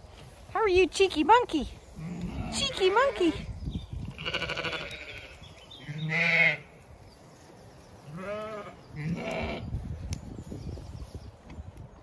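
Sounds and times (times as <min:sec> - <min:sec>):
sheep bleating: 0:04.2 - 0:06.7, 0:08.1 - 0:09.6.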